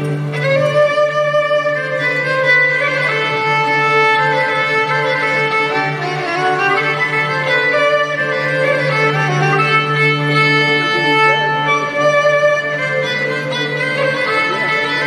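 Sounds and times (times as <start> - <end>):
violins and ouds playing melody: 0.0 - 15.0.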